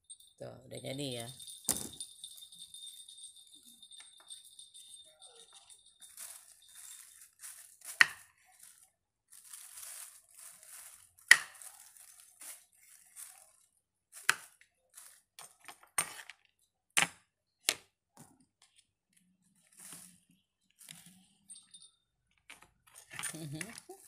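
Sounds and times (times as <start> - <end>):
plastic bag rustling: 6.0 - 15.4, 19.6 - 20.2.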